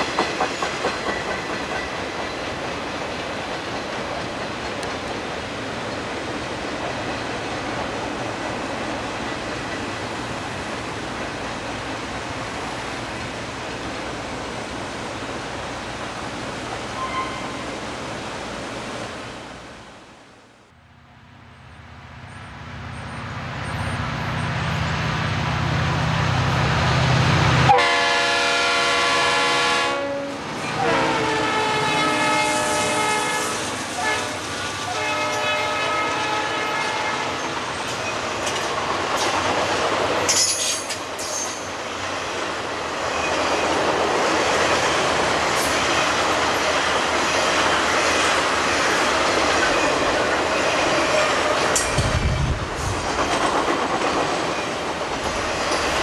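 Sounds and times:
train cars clickety-clack: 0.0 - 17.7, 30.4 - 56.0
diesel locomotive engine rumbling: 0.0 - 56.0
train air horn blasts: 17.0 - 17.7, 27.7 - 37.4.

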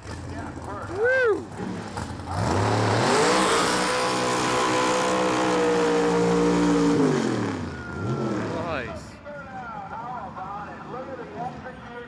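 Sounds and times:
drag car engine revving: 0.0 - 9.0.

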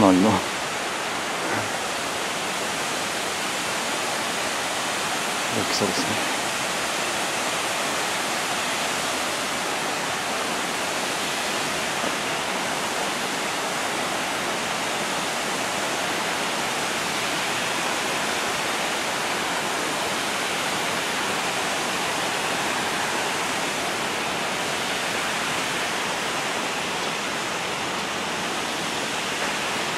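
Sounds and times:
waterfall rushing: 0.0 - 29.9.

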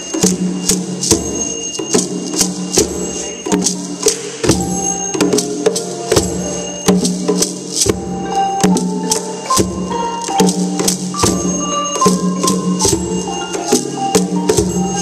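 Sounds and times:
hand drums: 0.0 - 15.0
mallet bar instruments ringing: 0.0 - 15.0.

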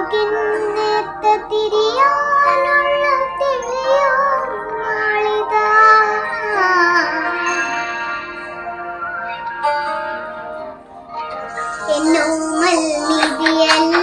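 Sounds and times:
girl singing: 0.0 - 7.7, 11.3 - 14.0.

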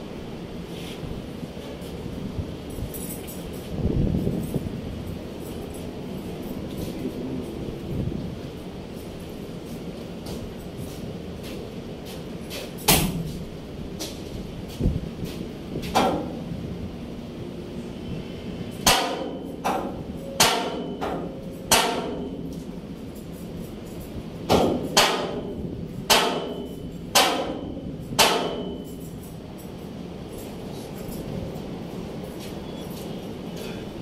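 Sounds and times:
sharp metallic impacts: 18.7 - 30.5.

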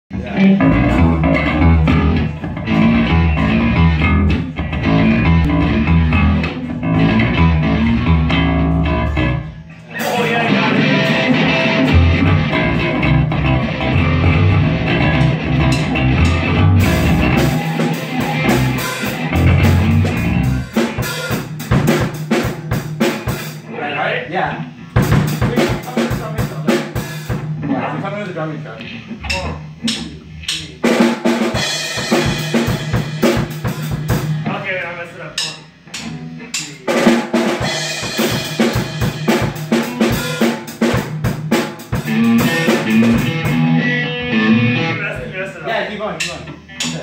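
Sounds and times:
drum kit: 0.1 - 23.7, 24.8 - 27.8, 29.2 - 45.4, 46.2 - 47.0
electric bass: 0.1 - 23.7, 35.4 - 45.4
electric guitar: 0.1 - 26.1, 28.6 - 34.6, 35.3 - 45.4.

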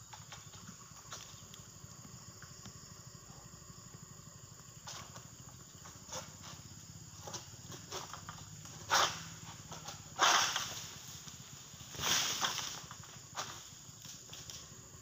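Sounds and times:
palm fronds rustling and snapping: 7.2 - 14.6
sickle scraping and cracking: 7.2 - 14.6
fronds crashing down: 9.8 - 13.6.

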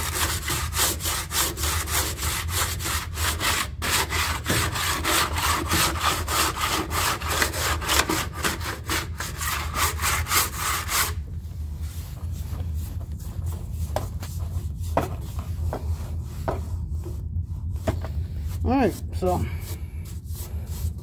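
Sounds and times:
hand sanding body filler: 0.0 - 21.0.

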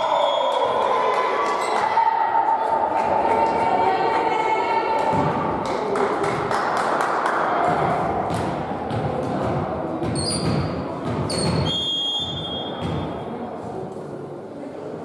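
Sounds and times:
echoing murmur of sports hall: 0.0 - 15.0
sneaker squeaks on wooden court: 10.0 - 13.2.

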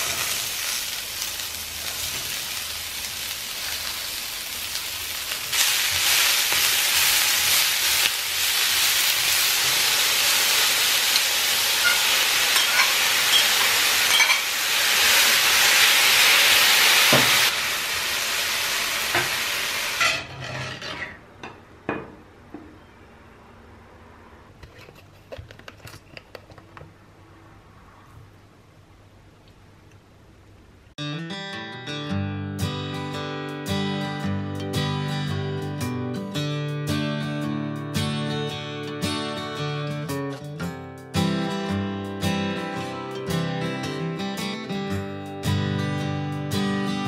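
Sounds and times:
vegetables sizzling in skillet: 0.0 - 20.3.

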